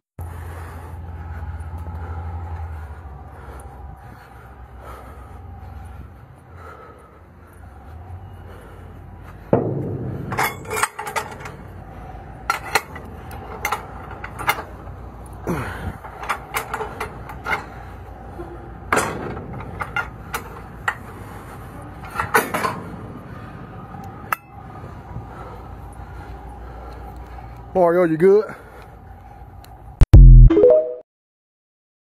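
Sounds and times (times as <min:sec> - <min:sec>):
metallic clanks of chain and wire: 0:10.1 - 0:11.7.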